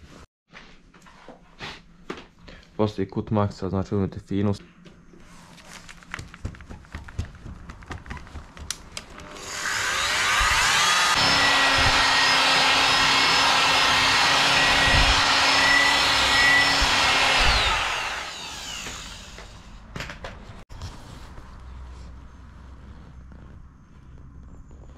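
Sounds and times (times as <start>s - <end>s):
polishing tool whine: 9.2s - 19.7s.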